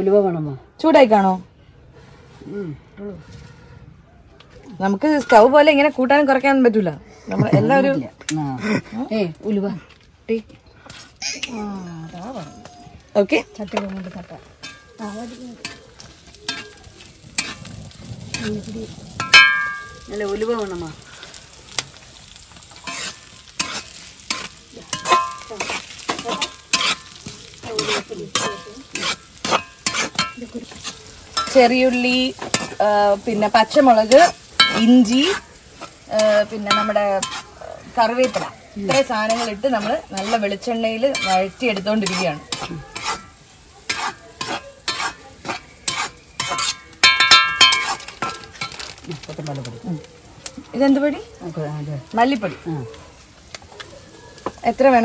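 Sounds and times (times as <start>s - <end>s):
food sizzling in oil: 10.3s - 55.0s
metal spoon scraping a pan: 13.6s - 49.3s.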